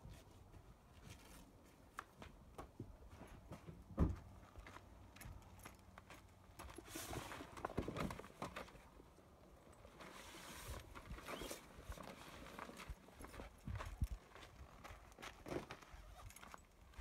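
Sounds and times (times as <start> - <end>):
footsteps on gravel: 12.3 - 17.0.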